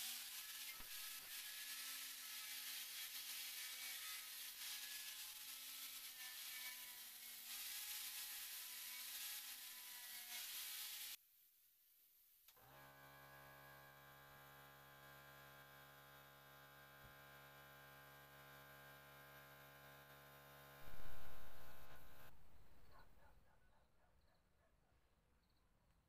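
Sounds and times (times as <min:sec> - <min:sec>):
angle grinder sanding wood: 0:00.0 - 0:11.2, 0:20.8 - 0:22.8.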